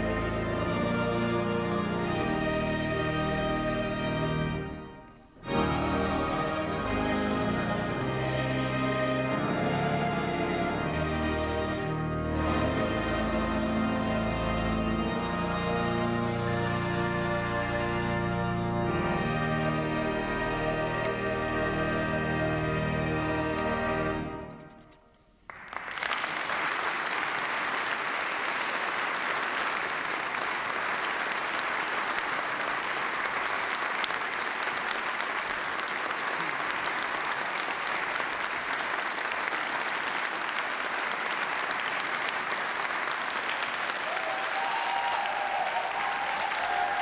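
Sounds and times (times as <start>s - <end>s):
audience applauding: 25.4s - 47.0s.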